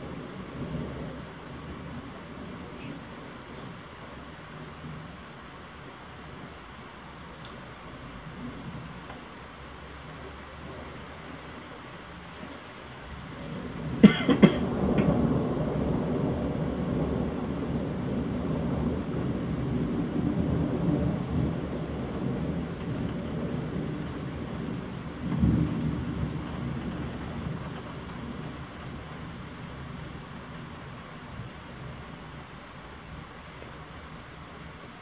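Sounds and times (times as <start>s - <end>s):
low rumble of thunder: 0.0s - 35.0s.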